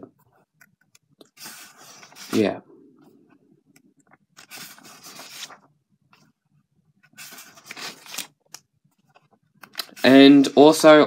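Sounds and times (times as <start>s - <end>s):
paper pages rustling: 1.3s - 2.5s, 4.1s - 6.4s, 7.0s - 10.2s.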